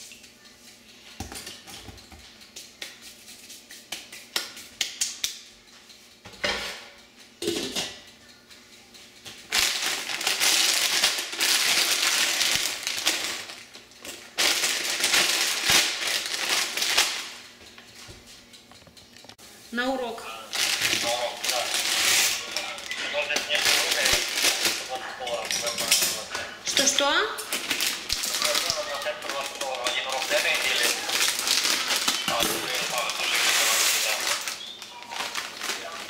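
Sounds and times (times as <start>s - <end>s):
plastic bag crinkling: 9.5s - 17.4s, 20.5s - 25.6s, 27.5s - 36.0s.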